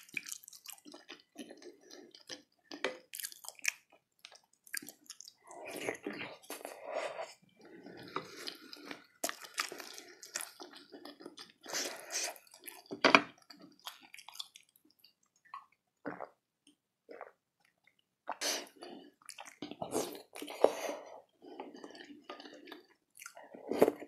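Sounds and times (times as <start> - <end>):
wet chewing and smacking: 0.0 - 24.0.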